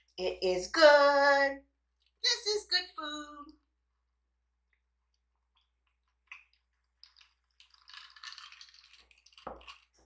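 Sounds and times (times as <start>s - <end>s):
soda fizzing: 6.3s - 10.0s.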